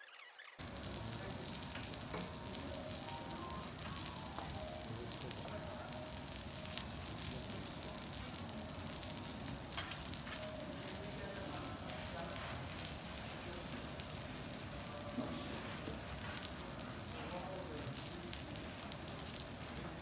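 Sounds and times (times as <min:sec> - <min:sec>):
beef sizzling on a griddle: 0:00.6 - 0:20.0.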